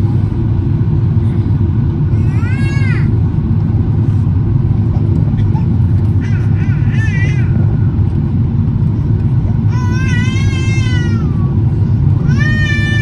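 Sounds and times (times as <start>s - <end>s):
airliner cabin rumble: 0.0s - 13.0s
infant crying: 9.7s - 11.6s, 12.2s - 13.0s.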